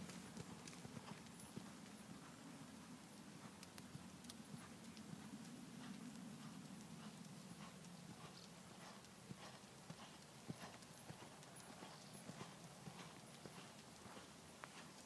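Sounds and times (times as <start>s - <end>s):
hoofbeats on sand: 3.4s - 15.0s.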